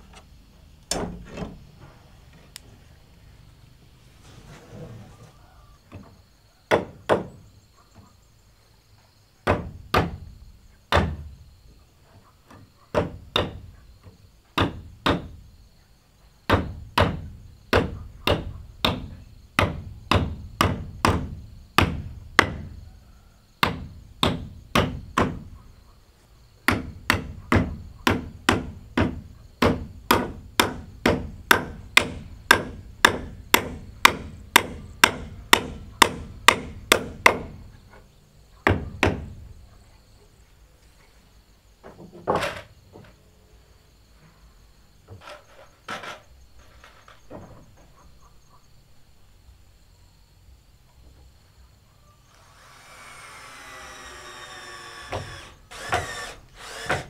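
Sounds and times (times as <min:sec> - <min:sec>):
hand tool striking wood: 0:12.9 - 0:13.7, 0:16.5 - 0:22.7, 0:26.7 - 0:38.0, 0:52.4 - 0:57.0.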